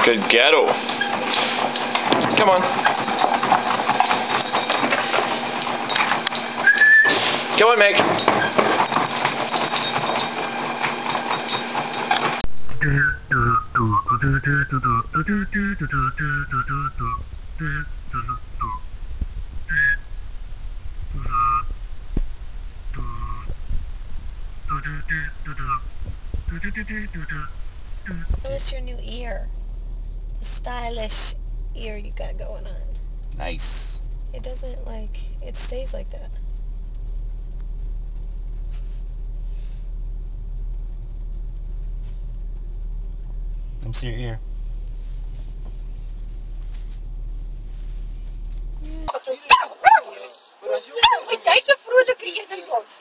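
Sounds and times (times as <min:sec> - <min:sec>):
car interior low rumble: 0:00.0 - 0:53.0
soft rustles: 0:32.7 - 0:49.2.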